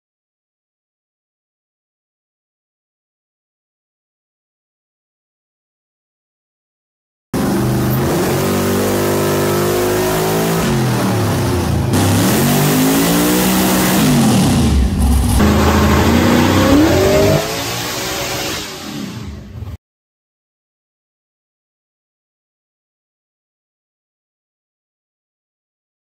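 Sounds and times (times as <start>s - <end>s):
engine revving: 7.4s - 19.8s.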